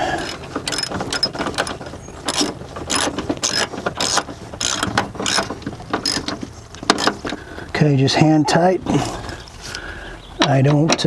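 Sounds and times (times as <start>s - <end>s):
socket ratchet clicking: 0.2s - 1.7s, 2.3s - 6.3s.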